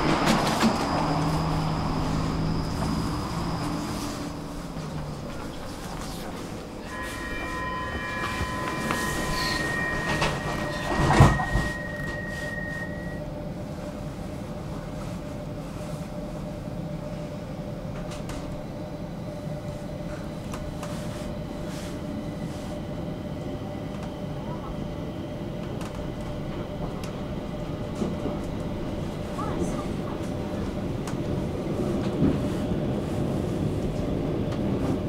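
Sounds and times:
metro train running noise: 0:00.0 - 0:35.0
steady high tones: 0:06.6 - 0:13.5.

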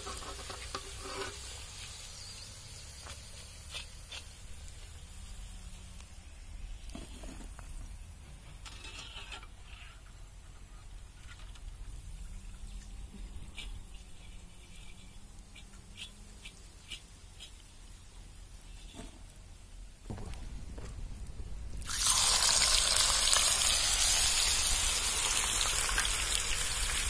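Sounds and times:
hot oil sizzling: 0:00.0 - 0:07.7, 0:21.8 - 0:27.0.

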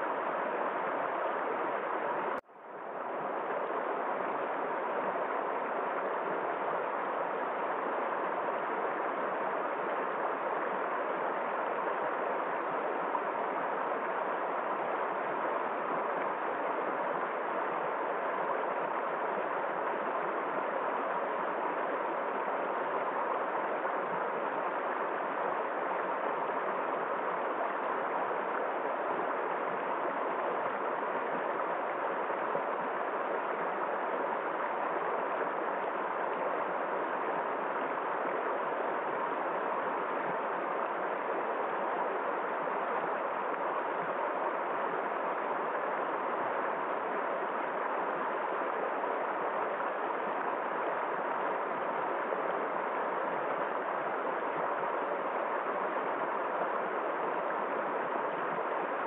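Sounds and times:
river rushing over stones: 0:00.0 - 0:59.0.

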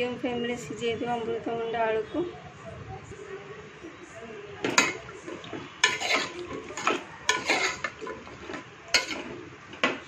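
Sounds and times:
spoon clinking on pot: 0:04.6 - 0:09.3
spoon scraping pot: 0:04.6 - 0:09.5.

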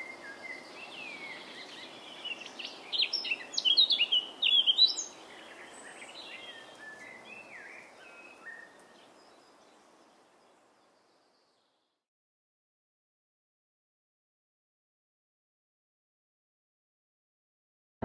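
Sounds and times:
birds chirping: 0:00.0 - 0:11.8
outdoor background hiss: 0:00.0 - 0:12.0.

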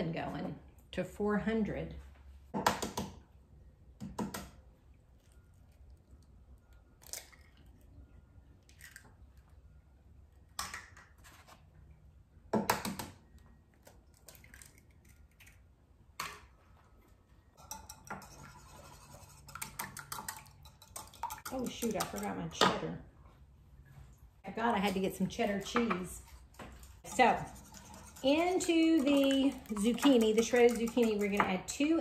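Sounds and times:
eggs tapping and cracking: 0:13.8 - 0:16.5, 0:19.4 - 0:22.8, 0:24.8 - 0:32.0
fork beating eggs in bowl: 0:17.6 - 0:22.4, 0:24.8 - 0:32.0.

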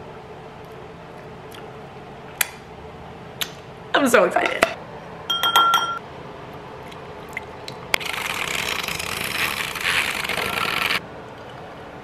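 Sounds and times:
frother whirring in liquid: 0:08.0 - 0:11.0.

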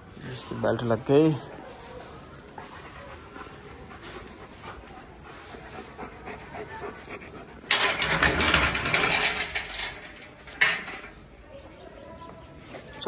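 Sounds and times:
dog panting: 0:02.4 - 0:07.7.

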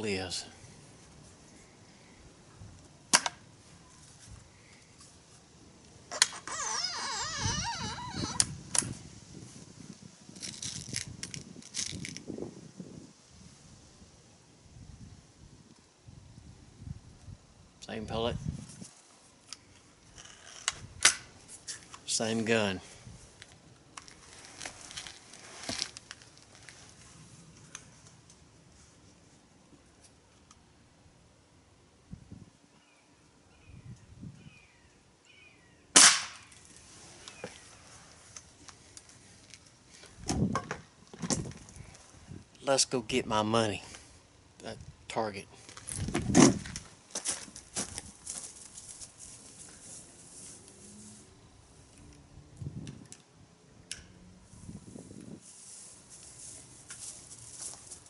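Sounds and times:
air rifle barrel clicks: 0:03.1 - 0:03.4, 0:20.6 - 0:21.3
rustling: 0:22.8 - 0:30.2, 0:45.6 - 0:51.3, 0:54.5 - 0:58.0.

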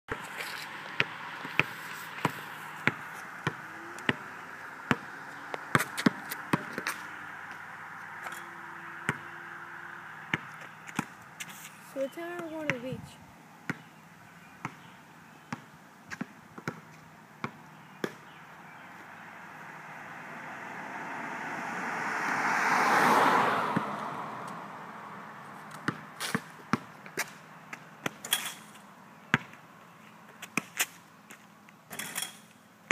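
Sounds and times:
basketball bouncing on asphalt: 0:00.1 - 0:14.0, 0:14.6 - 0:19.0, 0:25.7 - 0:32.3
car driving past: 0:00.5 - 0:11.4, 0:18.7 - 0:26.2.

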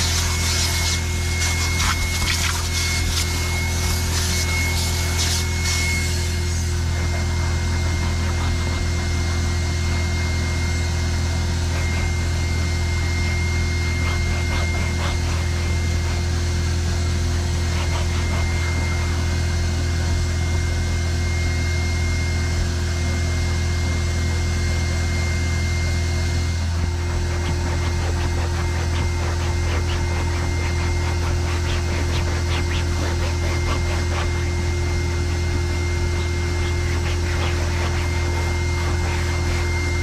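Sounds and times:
towel rubbing seat upholstery: 0:00.0 - 0:20.5, 0:26.5 - 0:40.0
machine hum: 0:25.0 - 0:40.0.

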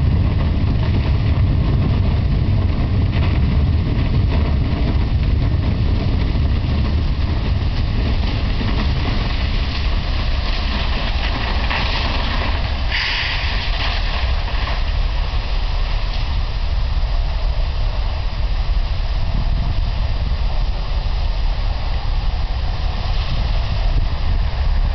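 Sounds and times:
deep roar of gas blowout: 0:00.0 - 0:24.9
high-pressure hissing: 0:12.9 - 0:13.6.

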